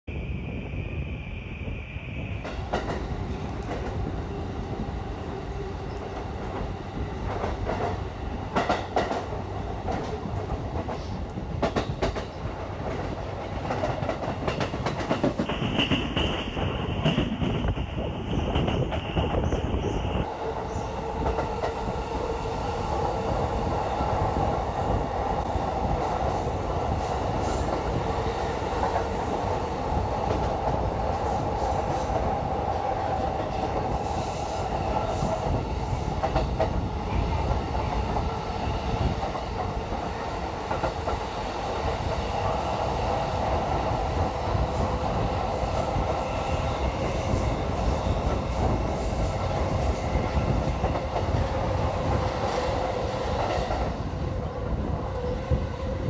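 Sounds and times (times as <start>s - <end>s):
train wheels clattering over rail joints: 7.2s - 19.3s.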